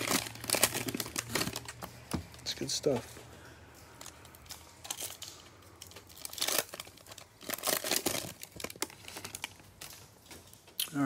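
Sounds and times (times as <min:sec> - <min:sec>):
cellophane wrapper crinkling: 0:00.0 - 0:11.0.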